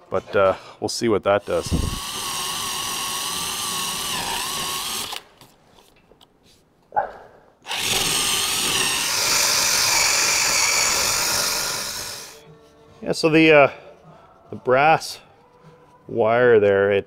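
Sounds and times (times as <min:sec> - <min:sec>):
die grinder wire brush whining: 0:01.4 - 0:05.2, 0:07.7 - 0:12.4.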